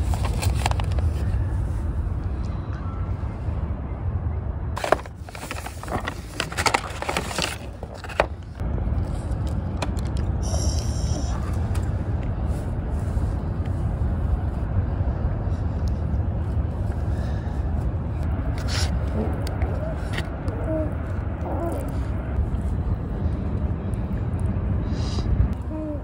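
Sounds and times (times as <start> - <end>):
paper wrapping crinkling: 0.0 - 1.3, 4.8 - 8.6
steady low rumble: 0.0 - 26.0.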